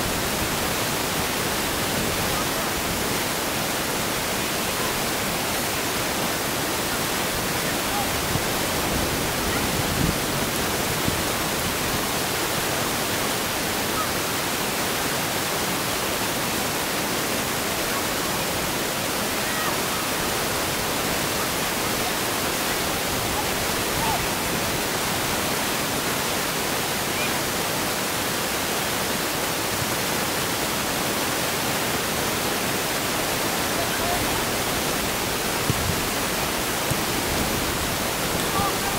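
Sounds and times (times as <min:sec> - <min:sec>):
steady outdoor hiss: 0:00.0 - 0:38.9.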